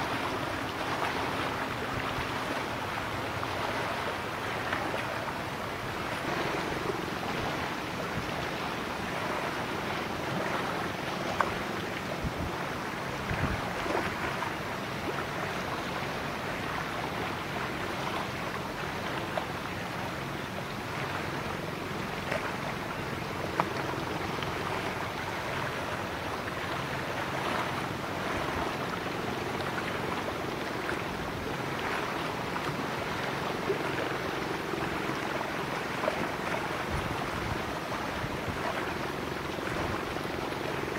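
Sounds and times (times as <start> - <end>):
boat engine humming: 0.0 - 40.9
wind: 0.0 - 40.9.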